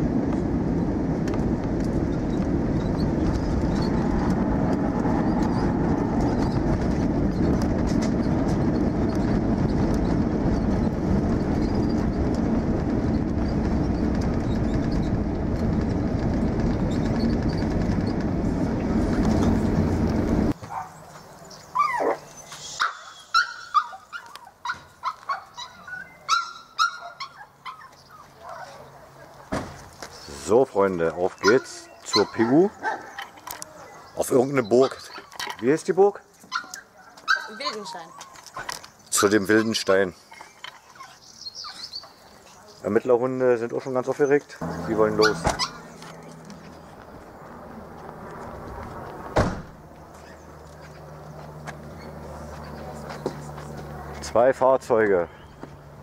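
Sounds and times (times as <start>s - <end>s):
airliner engines and airflow rushing: 0.0s - 26.4s, 27.5s - 56.0s
dogs yipping and whining: 21.7s - 28.9s, 31.4s - 35.5s, 36.4s - 39.8s, 40.4s - 42.2s, 45.2s - 46.2s.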